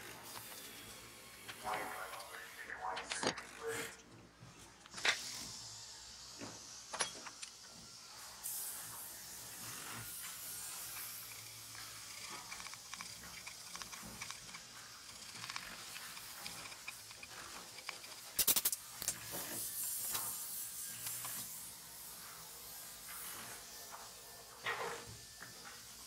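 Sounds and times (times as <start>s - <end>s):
chisel scraping wood: 10.8s - 18.4s
sharp chisel clicks: 12.2s - 19.2s.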